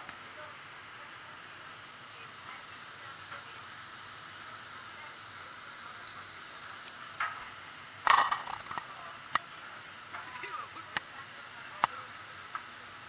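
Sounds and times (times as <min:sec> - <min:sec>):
faint voices: 0:00.0 - 0:13.0.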